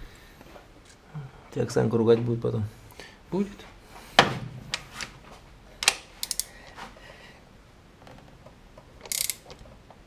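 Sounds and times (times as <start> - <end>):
wrench turning thread tap: 5.8 - 6.5, 9.0 - 9.6.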